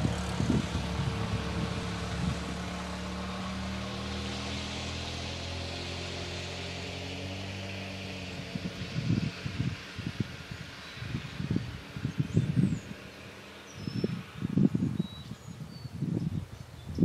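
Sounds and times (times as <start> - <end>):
engine droning: 0.0 - 16.3.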